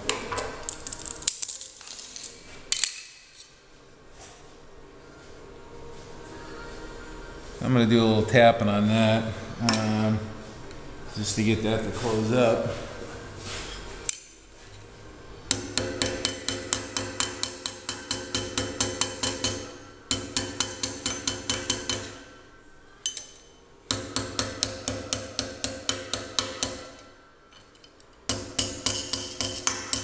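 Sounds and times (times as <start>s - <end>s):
hammer tapping on metal: 15.5s - 22.2s, 23.9s - 27.0s.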